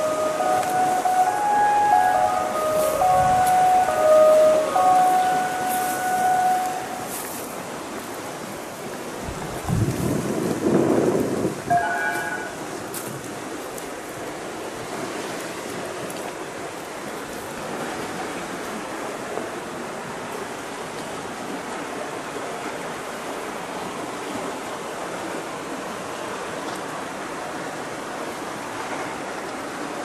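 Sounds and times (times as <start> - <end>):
light rain falling: 0.0 - 30.0.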